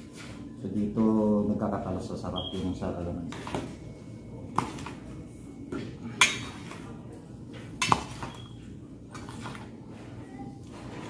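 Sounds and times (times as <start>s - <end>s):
metal spoon clinking on steel basin: 6.2s - 6.8s
spoon scraping basin: 6.2s - 6.9s, 7.6s - 10.0s.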